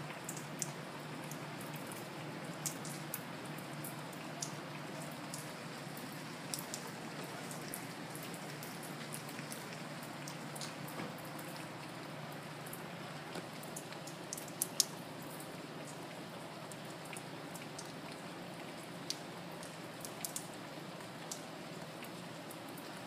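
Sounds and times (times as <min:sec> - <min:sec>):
rain falling steady hiss: 0:00.0 - 0:23.0
raindrops ticking close by: 0:00.0 - 0:23.0.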